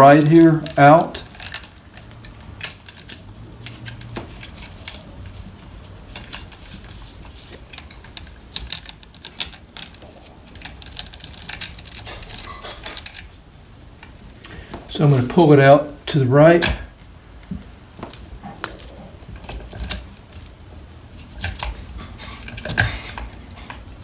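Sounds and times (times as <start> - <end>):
saw chain links clinking: 0.0 - 5.4, 7.6 - 13.3.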